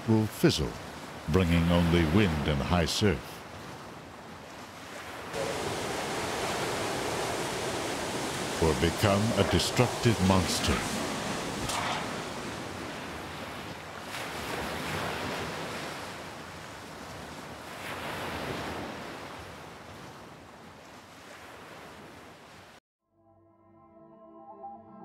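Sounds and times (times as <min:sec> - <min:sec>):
hurricane wind: 0:00.0 - 0:22.8
driving rain: 0:05.4 - 0:13.0.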